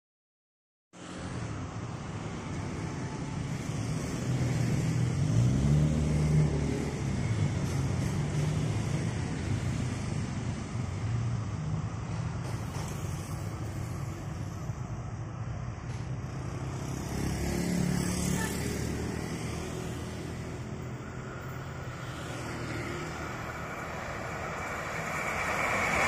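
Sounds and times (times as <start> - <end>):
low outdoor rumble: 23.0 - 26.0.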